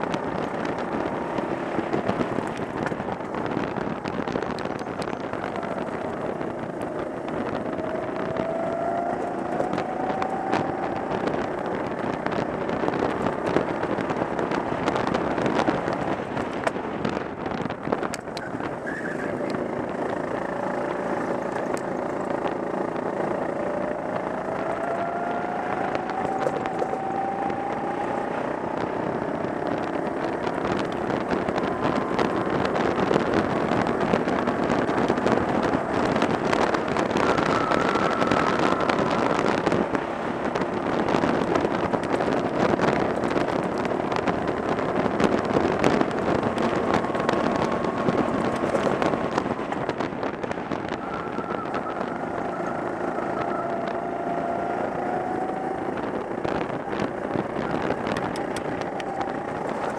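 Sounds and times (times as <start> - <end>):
distant go-kart engines: 0.0 - 59.9
go-kart engine running hard: 0.0 - 59.9.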